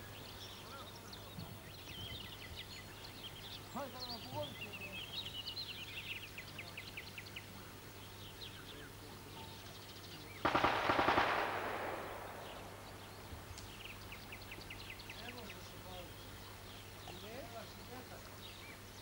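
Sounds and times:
songbirds chirping: 0:00.0 - 0:19.0
automatic gunfire: 0:10.4 - 0:13.0.

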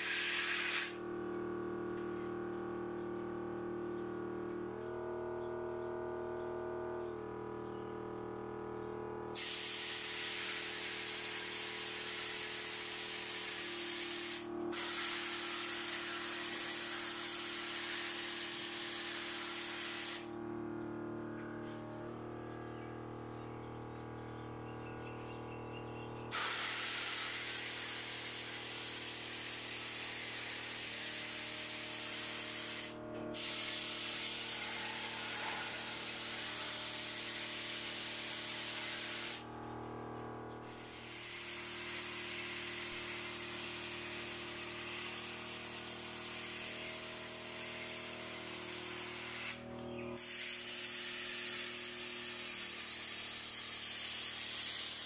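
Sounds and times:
paint spray gun hissing: 0:00.0 - 0:01.0, 0:09.4 - 0:20.7, 0:26.3 - 0:55.0.

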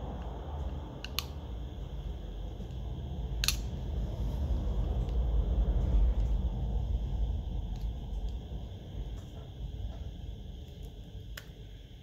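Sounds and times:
steady low rumble: 0:00.0 - 0:12.0
plastic parts clicking: 0:01.0 - 0:01.4.

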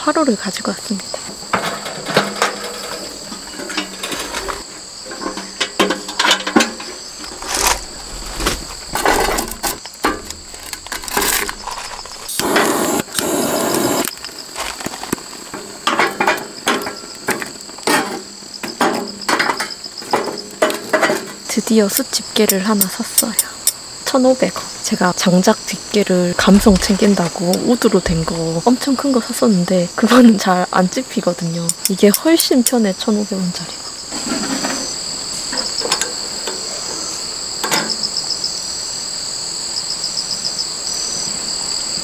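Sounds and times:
crickets chirping: 0:00.0 - 0:42.0
charcoal briquettes clattering: 0:01.1 - 0:21.6, 0:26.3 - 0:28.6, 0:34.1 - 0:38.1
metal grill being handled: 0:01.4 - 0:12.4
gas torch hissing: 0:11.1 - 0:14.3.

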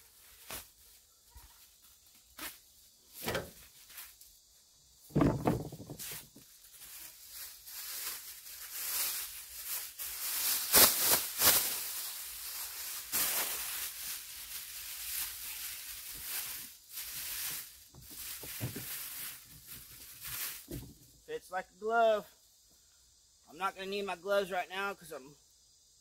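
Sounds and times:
dull thump: 0:05.1 - 0:06.2, 0:20.7 - 0:21.0
plastic bag flapping: 0:05.1 - 0:06.4, 0:07.5 - 0:20.9
plastic bag rustling and crackling: 0:05.1 - 0:21.0.

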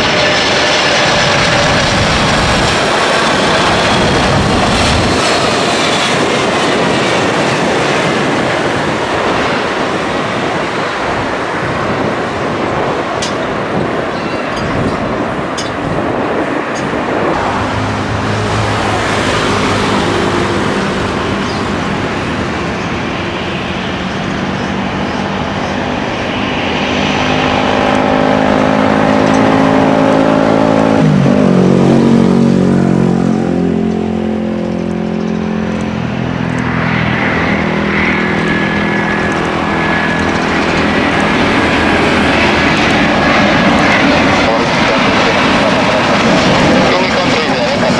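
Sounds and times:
high jet engine whine: 0:00.0 - 0:47.9
jet engines at takeoff thrust: 0:00.0 - 0:47.9.

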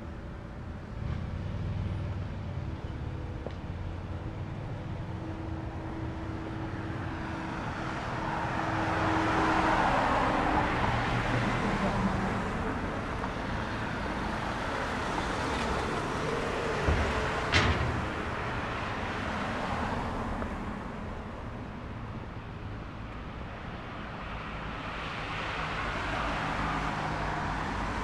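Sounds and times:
low traffic rumble: 0:00.0 - 0:28.0
car passing: 0:04.2 - 0:22.0.

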